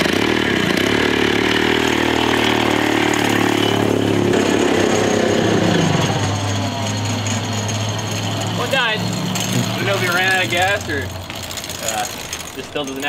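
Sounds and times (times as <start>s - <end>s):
two-stroke engine running: 0.0s - 13.0s.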